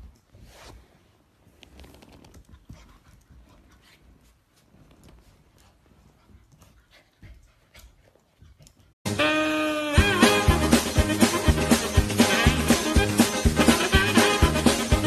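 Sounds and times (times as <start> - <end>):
puppy scuffling on carpet: 0.0 - 6.8.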